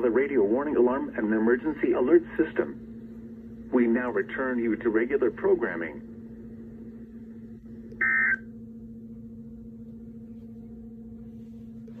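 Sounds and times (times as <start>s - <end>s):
radio speaker hum: 0.0s - 6.2s, 7.5s - 8.5s
high data tones burst: 8.0s - 8.4s.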